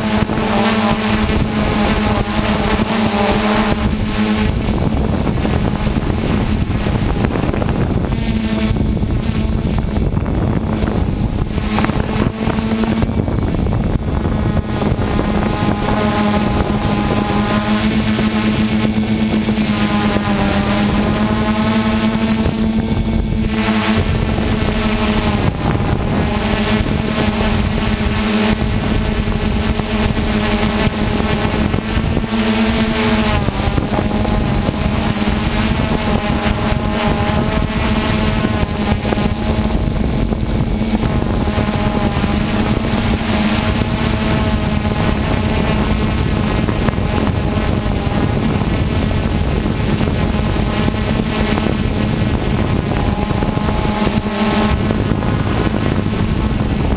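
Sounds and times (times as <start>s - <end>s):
drone motors whirring: 0.0s - 56.9s.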